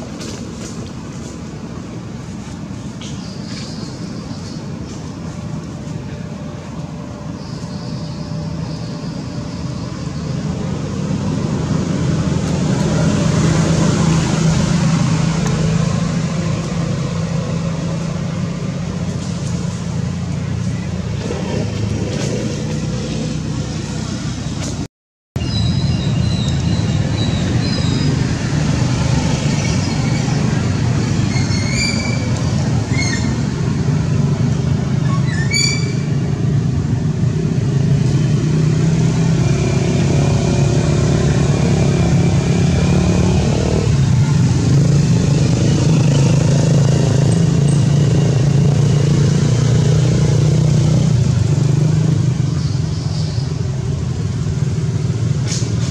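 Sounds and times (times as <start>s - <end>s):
vehicle engine rumble: 0.0s - 55.9s.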